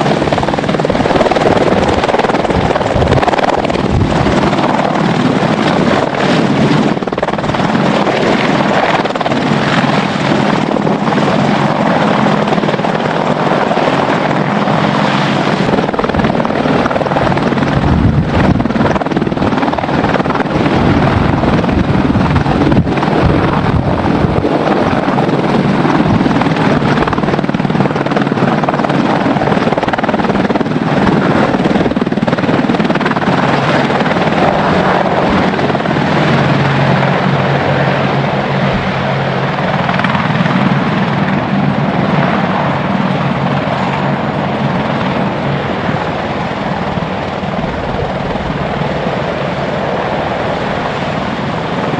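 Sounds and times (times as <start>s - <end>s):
helicopter rotor thrum: 0.0s - 51.9s
helicopter turbine noise: 0.0s - 51.9s.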